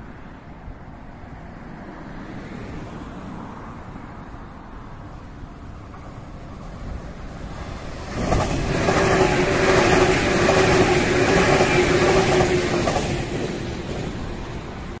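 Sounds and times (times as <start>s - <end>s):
electric train passing: 4.8s - 15.0s.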